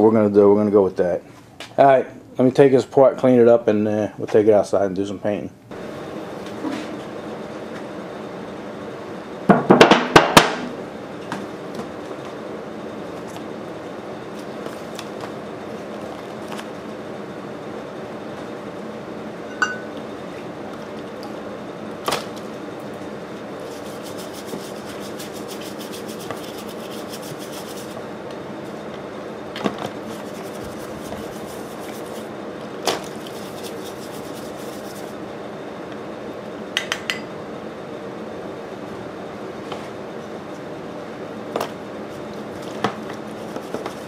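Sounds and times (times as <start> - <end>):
low steady hum: 12.6 - 36.4
brush scrubbing: 23.6 - 28.0, 30.0 - 32.3, 33.0 - 35.2, 42.1 - 44.0.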